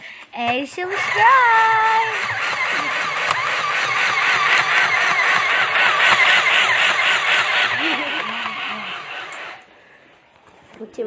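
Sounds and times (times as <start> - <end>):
sewing machine running: 0.8 - 9.7.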